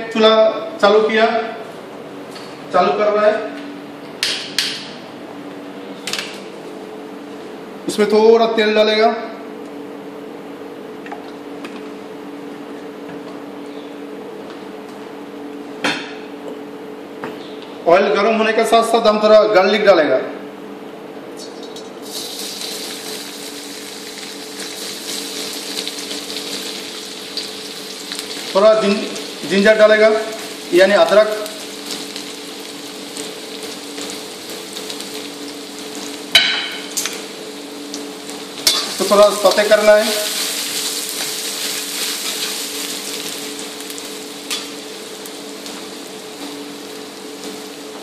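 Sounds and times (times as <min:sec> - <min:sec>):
garlic sizzling in hot oil: 0:22.0 - 0:48.0.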